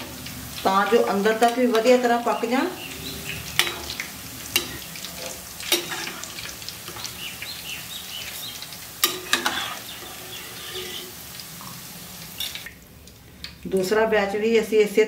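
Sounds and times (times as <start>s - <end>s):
deep-frying sizzle: 0.0s - 15.0s
metal spoon knocking on pan: 3.6s - 4.0s, 4.6s - 4.9s.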